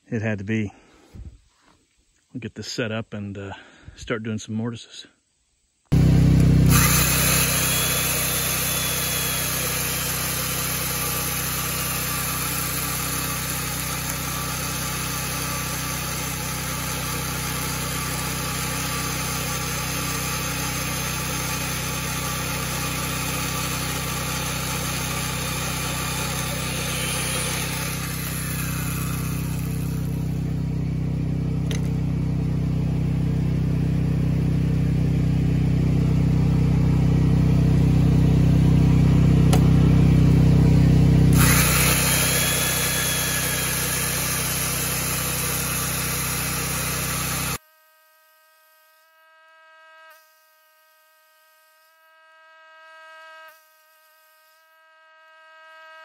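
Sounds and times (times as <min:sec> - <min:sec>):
mortiser motor drone: 0:05.9 - 0:47.6.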